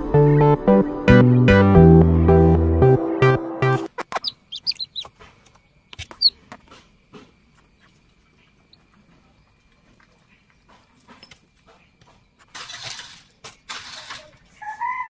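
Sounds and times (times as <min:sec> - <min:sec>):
plucked guitar music: 0:00.0 - 0:03.9
chick peeping in egg: 0:04.0 - 0:06.6.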